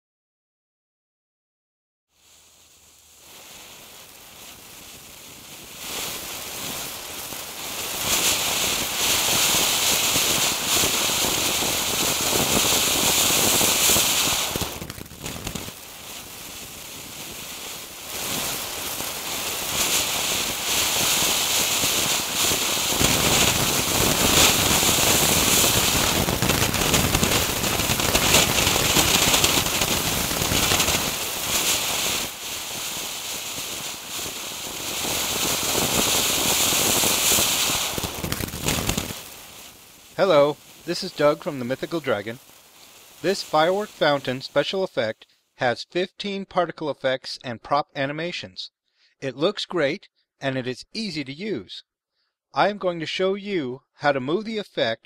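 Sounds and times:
fireworks fountain hissing: 2.1s - 45.4s.

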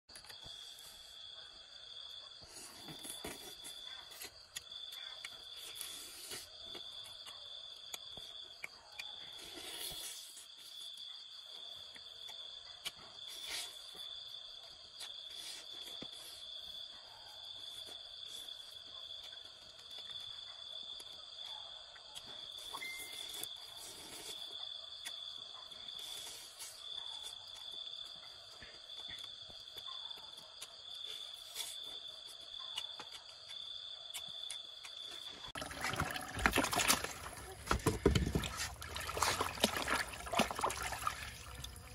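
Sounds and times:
crickets trilling: 0.1s - 41.9s
night insects chirring: 0.2s - 41.9s
person chewing meat: 26.1s - 41.9s.

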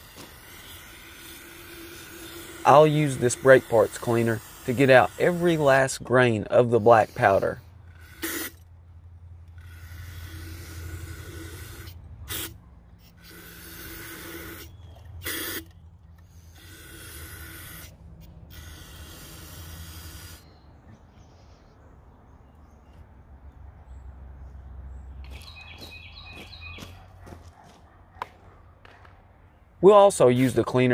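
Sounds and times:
aerosol can spraying: 0.0s - 6.0s, 18.5s - 20.5s.

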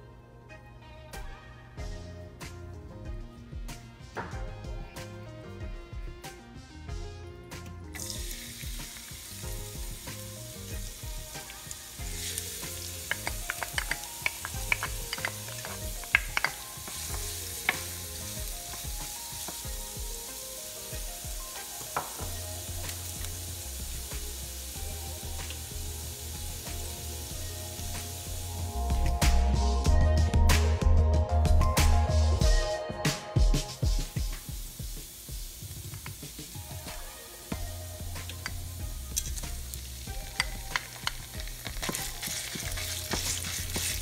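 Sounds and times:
garlic sizzling in oil: 7.9s - 29.7s, 33.8s - 44.0s
spatula tapping and scraping pan: 13.0s - 18.0s, 21.8s - 22.4s, 40.2s - 44.0s.

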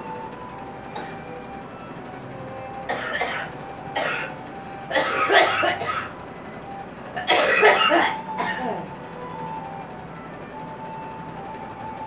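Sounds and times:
woman coughing: 2.9s - 4.3s, 4.9s - 6.1s, 7.2s - 8.9s.

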